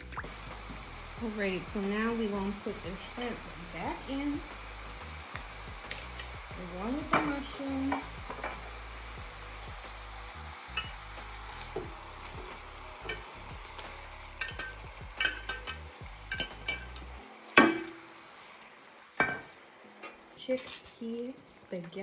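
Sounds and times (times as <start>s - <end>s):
sauce sizzling in a skillet: 0.0s - 21.6s
utensils clinking and tapping: 10.8s - 11.0s, 14.4s - 17.9s, 19.2s - 21.1s.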